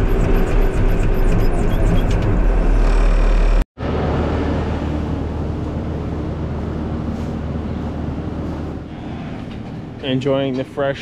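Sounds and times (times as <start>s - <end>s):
loader engine running: 0.0s - 8.9s.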